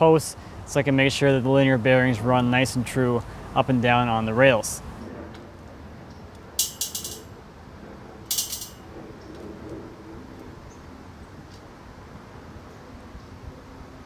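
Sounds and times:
metal clamp clicking and rattling: 0:06.6 - 0:07.3, 0:08.3 - 0:08.8.

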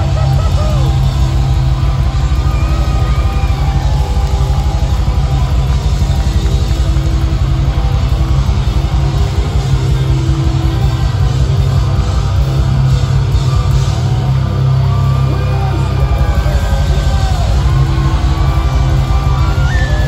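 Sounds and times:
drums: 0:00.0 - 0:20.0
heavy bass: 0:00.0 - 0:20.0
live hard rock band: 0:00.0 - 0:20.0.

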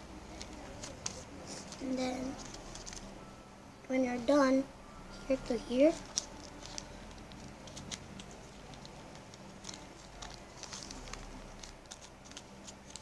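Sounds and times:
low steady hum: 0:00.0 - 0:13.0
paper folding and creasing: 0:00.3 - 0:03.1, 0:05.9 - 0:13.0.

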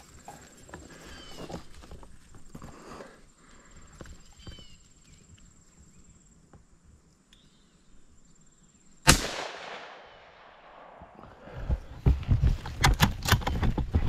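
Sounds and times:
rifle shot with echo: 0:09.0 - 0:11.4.

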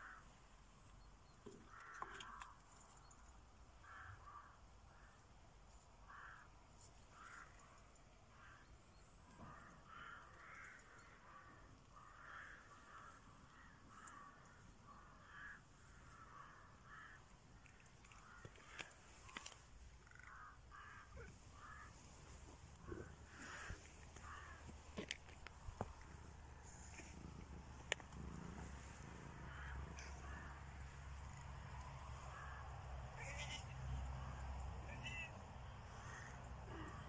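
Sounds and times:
harsh bird calls: 0:09.3 - 0:31.5.

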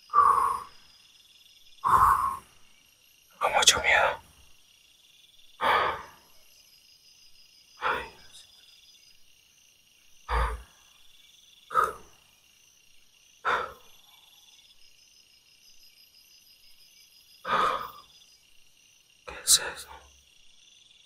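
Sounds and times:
crickets chirping: 0:00.0 - 0:21.0.

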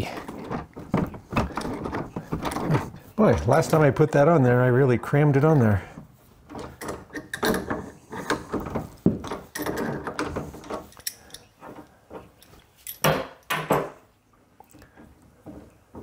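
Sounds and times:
metal pliers clicking and clinking: 0:10.9 - 0:11.5.

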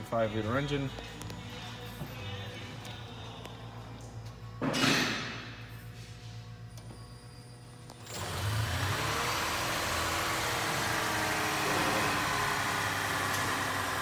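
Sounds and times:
car engine starting: 0:08.0 - 0:14.0.

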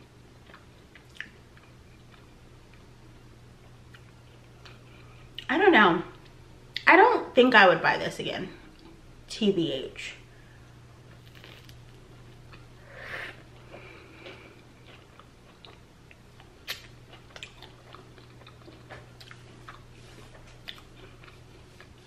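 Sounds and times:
low steady hum: 0:00.0 - 0:22.0
person chewing: 0:00.4 - 0:02.9, 0:11.1 - 0:12.7, 0:13.3 - 0:22.0.

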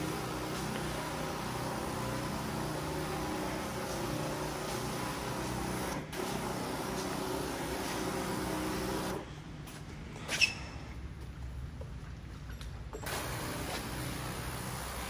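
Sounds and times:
sprayer motor hum: 0:00.0 - 0:09.2, 0:13.0 - 0:15.0
sharp high squeak: 0:10.2 - 0:10.8.

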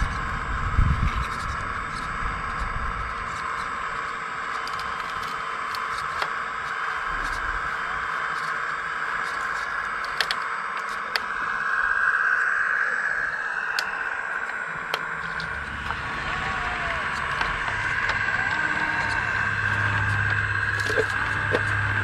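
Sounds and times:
hydraulic pump motor whining: 0:00.0 - 0:22.0
sharp clicks and scrapes: 0:00.8 - 0:11.6, 0:13.7 - 0:22.0.

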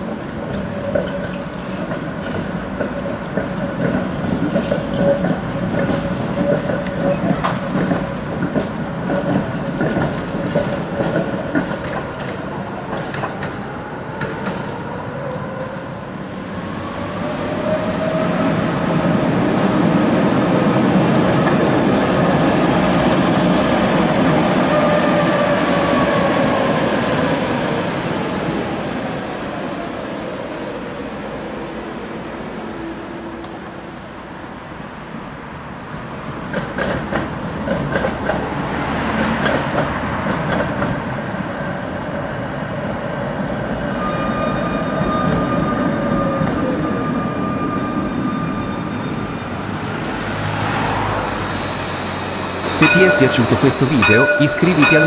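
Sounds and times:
tram wheels clattering over rail joints: 0:00.0 - 0:32.1, 0:35.9 - 0:55.0
tram motor whine: 0:43.4 - 0:55.0.

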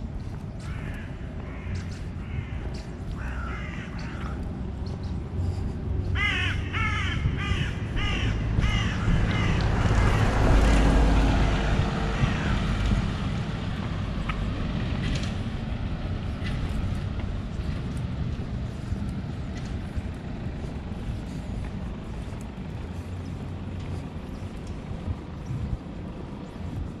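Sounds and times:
car passing: 0:00.0 - 0:27.0
crow cawing: 0:00.6 - 0:04.4, 0:06.1 - 0:10.4, 0:12.1 - 0:12.6.

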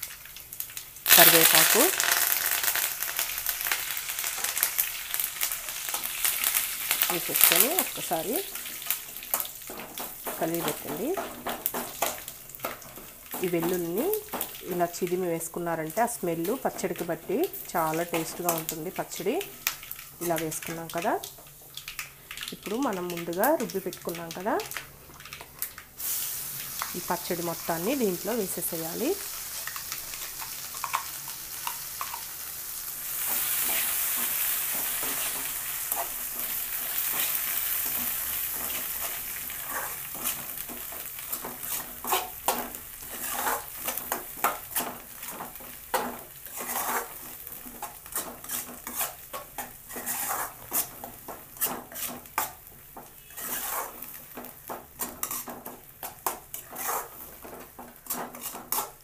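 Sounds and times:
chutney sizzling in oil: 0:00.0 - 0:59.0
spoon scraping and knocking pan: 0:09.3 - 0:15.2, 0:33.2 - 0:59.0.

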